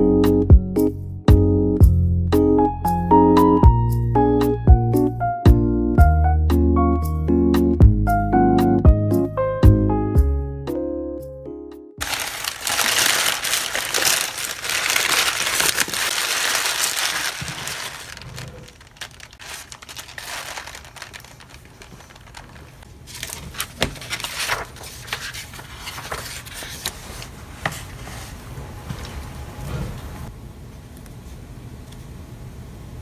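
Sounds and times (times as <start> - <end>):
plastic bag and paper crinkling: 12.0 - 27.3.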